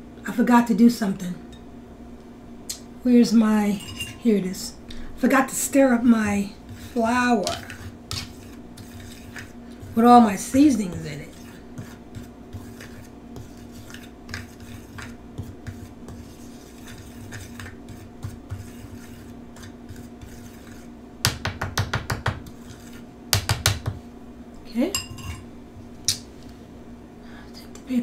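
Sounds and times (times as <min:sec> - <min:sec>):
utensil scraping in glass bowl: 0:03.7 - 0:04.4, 0:06.7 - 0:20.9, 0:22.5 - 0:23.0
utensil clinking against glass: 0:03.8 - 0:04.2.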